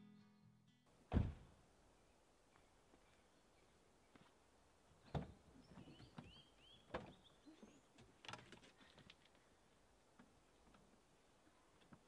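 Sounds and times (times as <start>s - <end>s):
van cargo door clunks: 1.1s - 1.4s
faint bird chirps: 5.0s - 8.0s.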